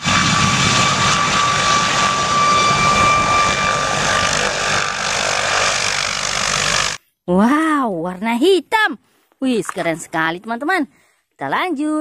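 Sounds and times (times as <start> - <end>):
helicopter rotor chop: 0.0 - 7.0
high turbine whine: 0.0 - 7.0.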